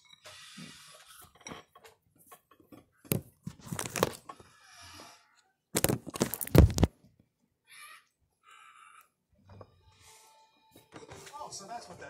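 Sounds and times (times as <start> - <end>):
phone handling rustling: 3.1 - 4.2, 5.8 - 6.9.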